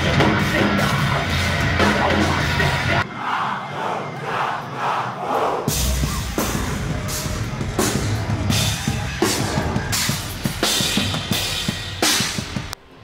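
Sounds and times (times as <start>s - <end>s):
heavy band playing live: 0.0s - 3.0s, 5.6s - 12.8s.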